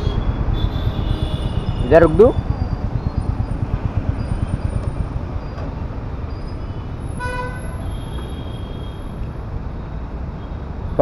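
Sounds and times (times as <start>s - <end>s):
vehicle horn tooting: 7.2s - 9.1s.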